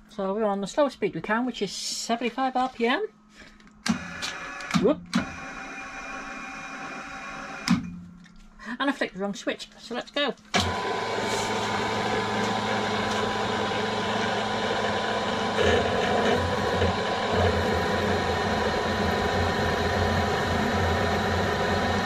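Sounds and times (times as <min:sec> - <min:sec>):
drill motor whining: 0:03.8 - 0:07.8, 0:10.6 - 0:22.0.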